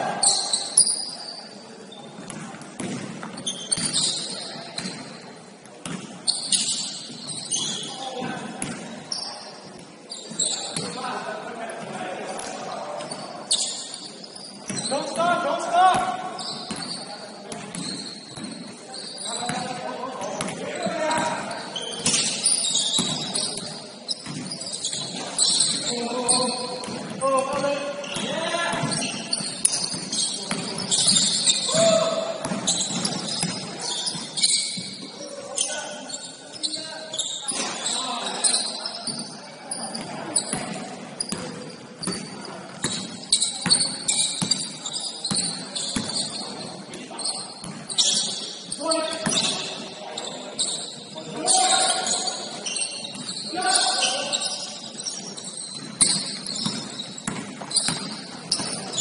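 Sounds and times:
sneaker squeaks: 0:00.0 - 0:59.0
basketball bouncing on court: 0:02.1 - 0:05.2, 0:05.8 - 0:07.8, 0:08.5 - 0:09.2, 0:15.9 - 0:18.7, 0:19.5 - 0:35.1, 0:40.0 - 0:46.5, 0:47.2 - 0:48.4, 0:49.1 - 0:49.8, 0:55.6 - 0:59.0
players' voices: 0:06.6 - 0:59.0.

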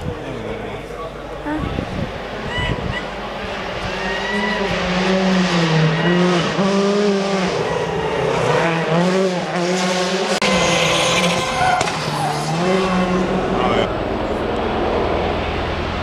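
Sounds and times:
rally car engine revving: 0:01.8 - 0:16.0.

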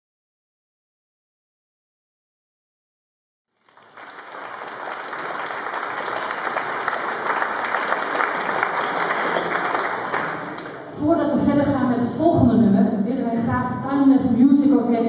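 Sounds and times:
audience applauding: 0:03.6 - 0:10.9.

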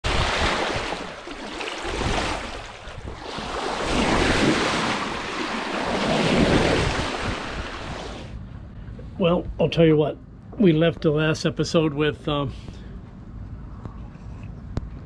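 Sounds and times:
water rushing along boat hull: 0:00.0 - 0:08.4
wind buffeting microphone: 0:01.8 - 0:08.8.

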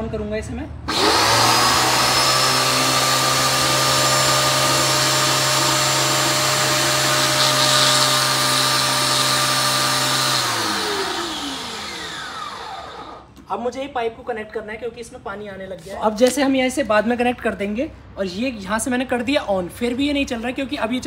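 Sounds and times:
pressure washer motor running: 0:00.9 - 0:13.2.

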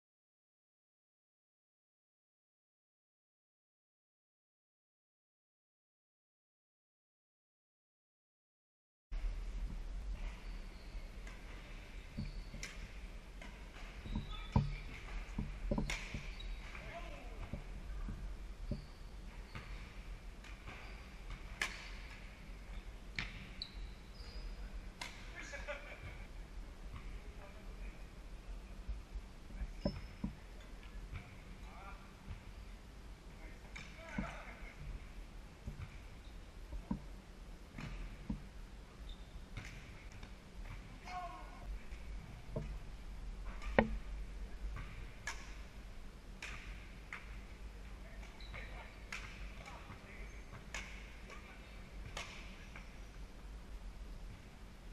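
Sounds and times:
shoes squeaking on wooden floor: 0:09.7 - 0:13.0, 0:13.7 - 0:20.0, 0:29.5 - 0:30.5
rackets hitting shuttlecock: 0:10.2 - 0:18.9, 0:19.5 - 0:22.4, 0:25.0 - 0:25.4, 0:43.4 - 0:45.7, 0:46.4 - 0:47.4, 0:48.2 - 0:52.9
racket hitting shuttlecock: 0:11.2 - 0:18.9, 0:20.4 - 0:22.2, 0:43.5 - 0:44.0.

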